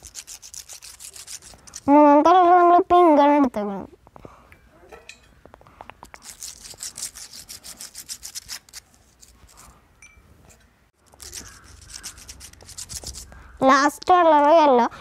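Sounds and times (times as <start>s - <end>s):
seed scraping on sandpaper: 0.0s - 1.9s, 6.1s - 9.8s, 11.0s - 13.3s.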